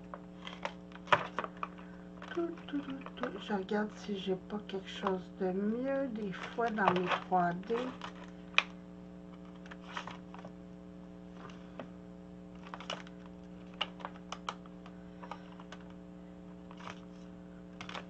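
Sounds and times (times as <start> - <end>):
steady low hum: 0.0 - 18.0
plastic folders clicking and rustling: 0.1 - 3.4, 6.2 - 10.5, 12.6 - 16.0, 16.7 - 18.0.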